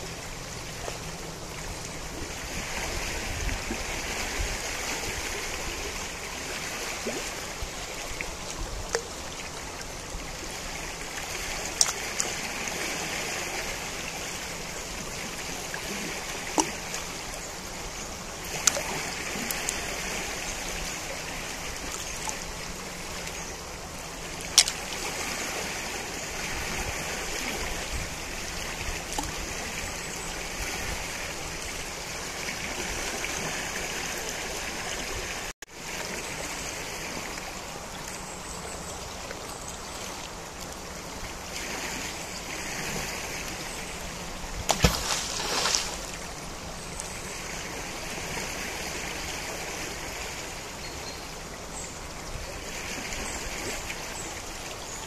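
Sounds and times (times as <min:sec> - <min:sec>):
river flowing: 0:00.0 - 0:55.0
sharp clicks or splashes: 0:11.8 - 0:12.4, 0:18.5 - 0:19.8, 0:24.4 - 0:25.0, 0:29.1 - 0:29.4, 0:44.7 - 0:46.2.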